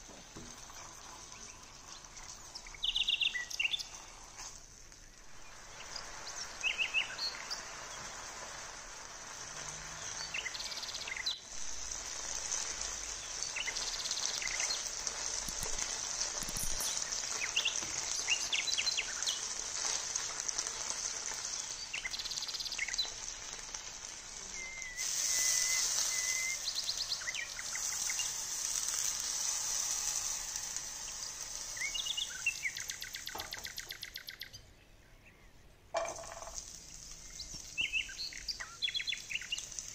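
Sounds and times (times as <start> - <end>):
chicken sizzling in hot oil: 0.0 - 34.5, 36.0 - 39.9
short high chirps: 24.6 - 27.3.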